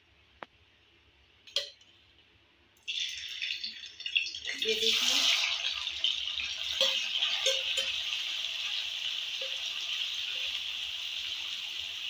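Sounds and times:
food sizzling in hot oil: 2.9 - 12.0.

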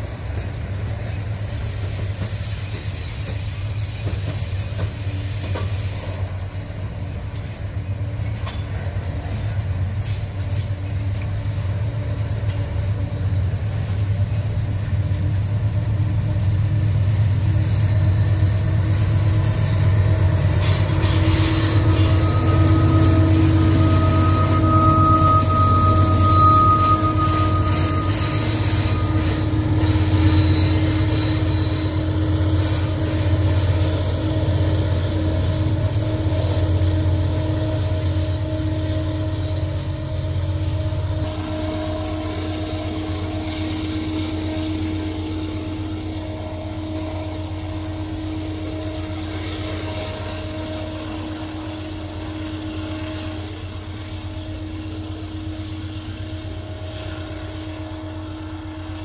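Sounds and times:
locomotive engine drone: 0.0 - 59.0
hiss: 1.3 - 6.6.

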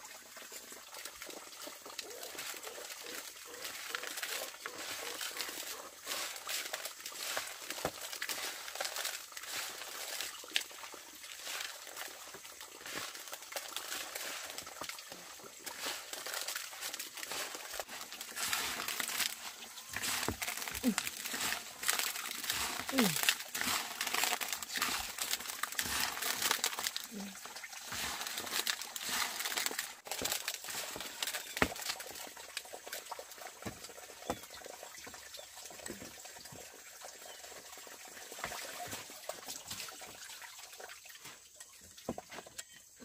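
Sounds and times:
rustling and crinkling: 1.8 - 32.7.

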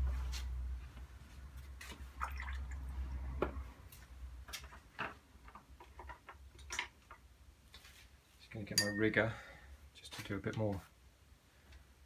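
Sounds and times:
water dripping and splashing: 1.9 - 3.4
brush knocking against pot: 8.8 - 9.2.

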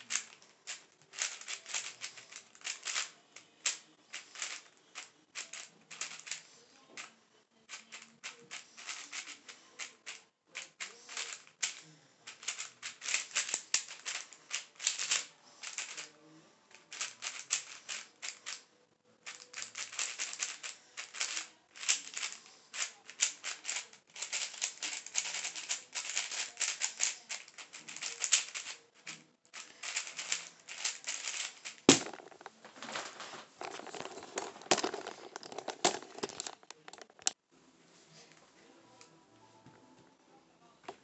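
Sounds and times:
puzzle cube clicking: 1.1 - 4.6, 7.7 - 16.0, 19.2 - 32.5, 33.6 - 37.4.

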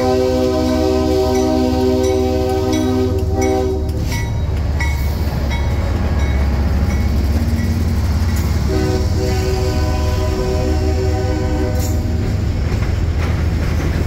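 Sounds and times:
train air horn: 0.0 - 4.2, 8.6 - 12.2
locomotive engine rumble: 0.0 - 14.0
wheels clicking over track: 11.8 - 14.0.

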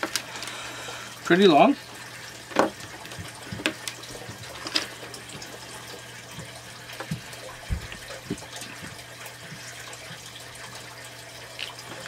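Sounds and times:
plastic cables clicking and rustling: 0.0 - 0.5, 2.5 - 5.0.

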